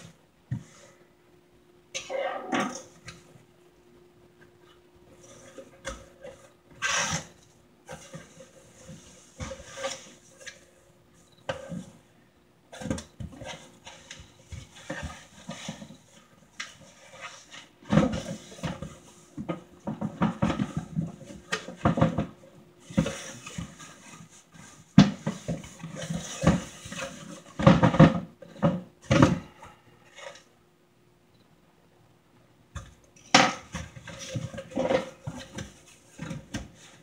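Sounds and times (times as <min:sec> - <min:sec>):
cardboard flaps scraping and rustling: 0:12.7 - 0:29.4
knocks and bumps on cardboard: 0:24.9 - 0:29.5.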